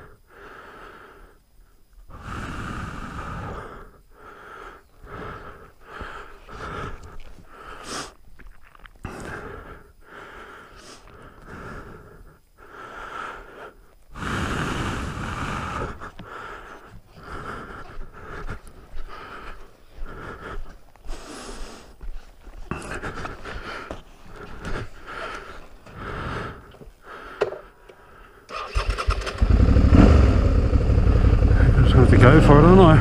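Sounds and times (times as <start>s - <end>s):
heavy breathing: 0.0s - 8.2s, 9.0s - 33.0s
rushes of noise: 28.7s - 33.0s.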